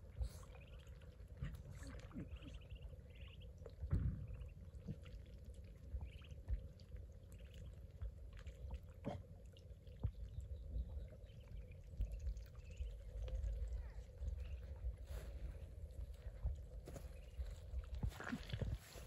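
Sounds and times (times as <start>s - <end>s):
ducklings paddling in water: 0.0s - 19.0s
ducklings peeping: 0.1s - 7.8s, 9.8s - 15.0s.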